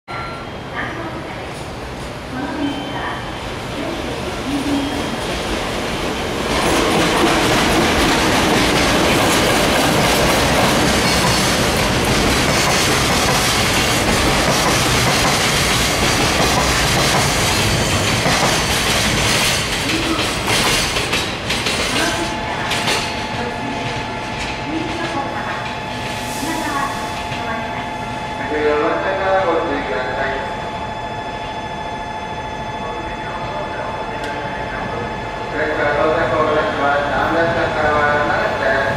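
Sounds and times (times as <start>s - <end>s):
steady high tone: 0.1s - 1.5s
electric locomotive passing: 0.2s - 38.9s.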